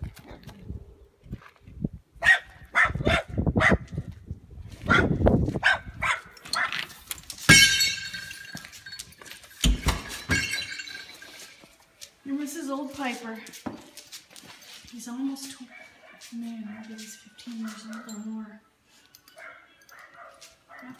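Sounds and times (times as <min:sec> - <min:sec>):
dog barking and yelping: 0:02.2 - 0:03.8, 0:04.9 - 0:06.8.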